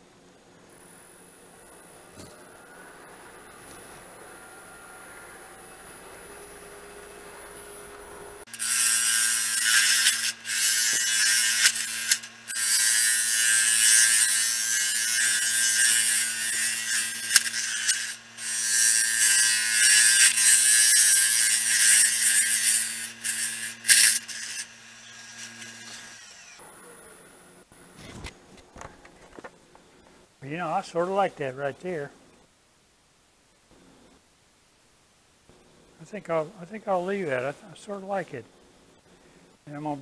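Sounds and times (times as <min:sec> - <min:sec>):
power tool motor humming: 0:06.6 - 0:26.6.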